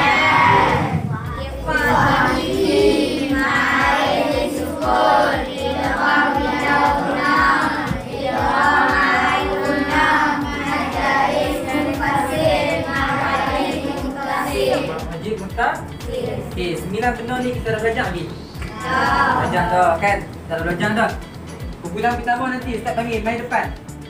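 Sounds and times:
children chanting in chorus: 0:00.0 - 0:15.0, 0:18.6 - 0:19.8
steady low beat: 0:00.0 - 0:24.0.

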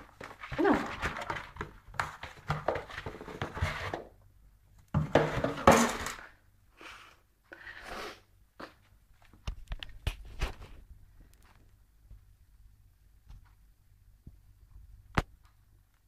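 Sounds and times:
cardboard box rustling and scraping: 0:00.0 - 0:04.2.

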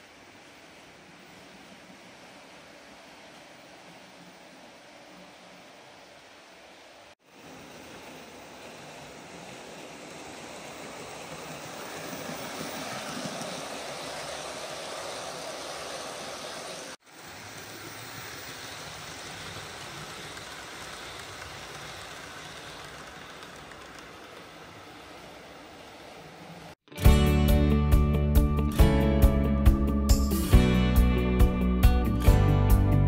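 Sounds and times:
model train wheels rumbling on rail: 0:07.8 - 0:26.7.

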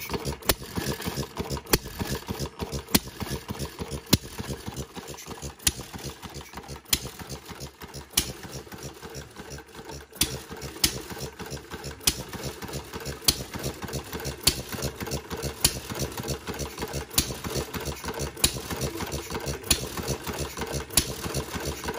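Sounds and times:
engine parts clattering: 0:00.0 - 0:21.9
engine firing pops: 0:01.7 - 0:04.6, 0:05.6 - 0:07.4, 0:08.0 - 0:08.6, 0:10.2 - 0:21.9.

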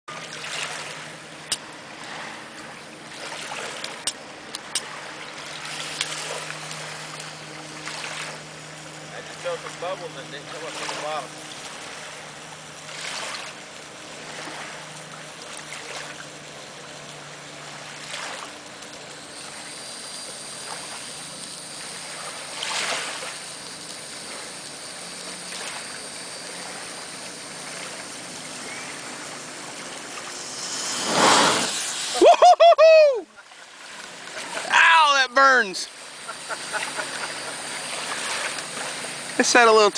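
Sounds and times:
sparklers fizzing: 0:18.6 - 0:33.2
rushing fireball flare-up: 0:29.6 - 0:32.2
person shouting: 0:32.2 - 0:33.3, 0:34.7 - 0:35.8.

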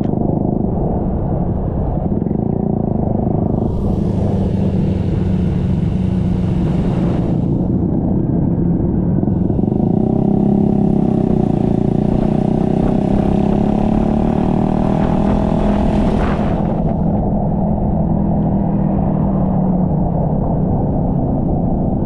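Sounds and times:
scooter engine running: 0:02.0 - 0:17.2
higher hiss: 0:03.5 - 0:07.7.

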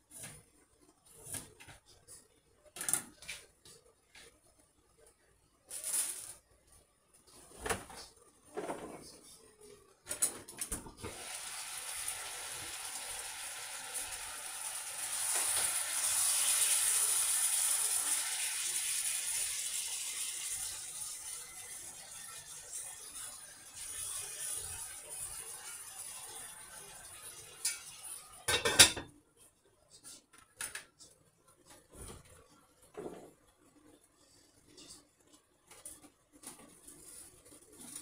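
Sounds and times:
food sizzling in a pot: 0:11.0 - 0:29.1.

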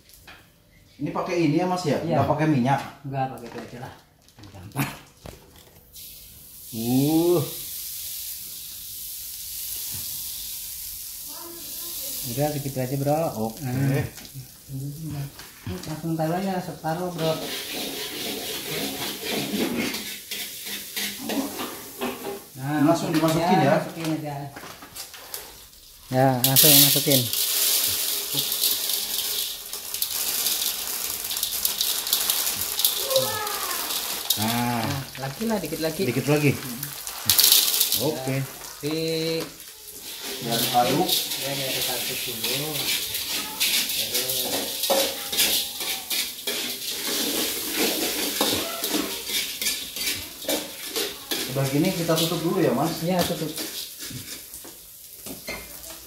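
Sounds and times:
margarine sizzling in a wok: 0:00.0 - 0:01.8, 0:05.8 - 0:56.0
popcorn kernels clicking on metal: 0:26.4 - 0:34.8, 0:37.3 - 0:38.1.

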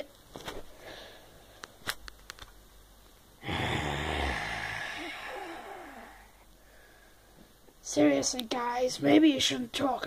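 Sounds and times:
breathy exhale: 0:03.4 - 0:07.4.

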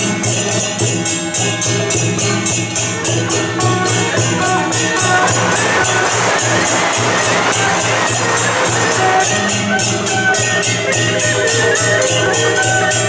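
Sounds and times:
cymbals clashing: 0:00.0 - 0:13.0
drum beating: 0:01.9 - 0:13.0
high wind instrument melody: 0:02.6 - 0:13.0.

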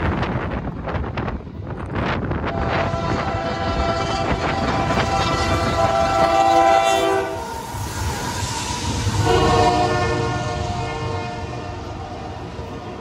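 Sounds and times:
train rumbling and clattering past: 0:00.0 - 0:13.0
locomotive air horn: 0:02.5 - 0:12.4.

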